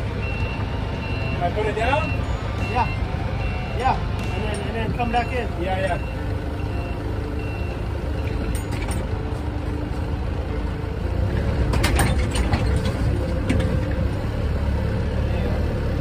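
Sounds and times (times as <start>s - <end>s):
reversing alarm beeping: 0.0s - 11.0s
vehicle engine running: 0.0s - 16.0s
metal clanks: 8.2s - 9.4s, 11.3s - 14.1s.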